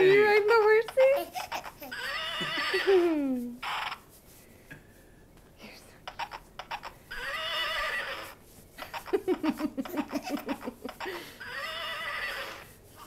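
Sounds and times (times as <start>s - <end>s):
recorded horse neighing: 1.9s - 2.9s, 7.1s - 8.3s, 11.4s - 12.6s.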